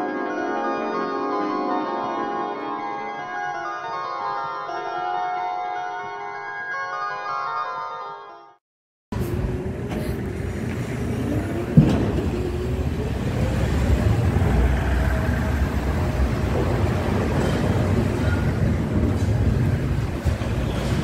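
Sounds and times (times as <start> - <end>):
wind: 9.1 - 21.0
outdoor machinery rumble: 9.2 - 21.0.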